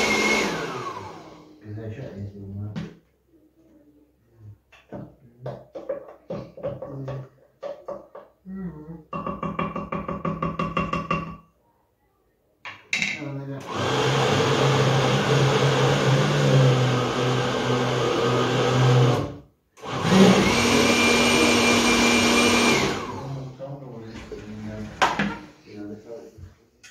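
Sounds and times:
blender whirring: 0.0s - 1.6s, 13.6s - 23.5s.

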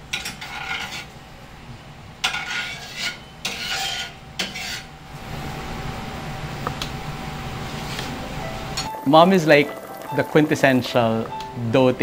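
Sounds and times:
spatula scraping frying pan: 0.1s - 1.1s, 2.2s - 5.0s.

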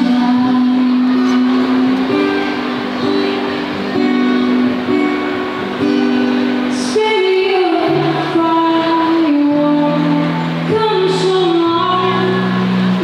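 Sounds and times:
woman singing through pa: 0.0s - 2.5s, 6.7s - 13.0s
acoustic guitar: 0.0s - 13.0s.

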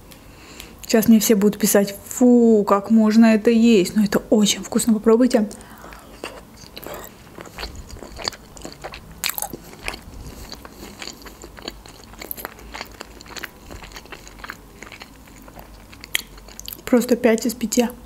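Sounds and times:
person chewing: 5.5s - 16.9s.

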